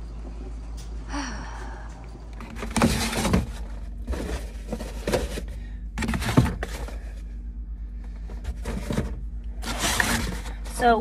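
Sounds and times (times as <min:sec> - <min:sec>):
egg cartons scraping on glass shelf: 0:08.4 - 0:11.0.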